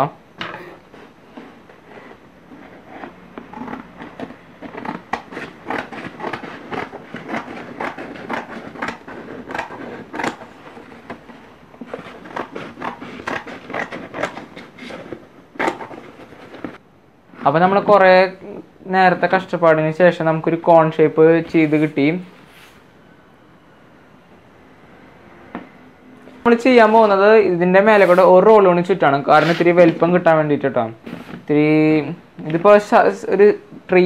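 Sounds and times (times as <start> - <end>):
scissors cutting paper: 0.6 - 16.8.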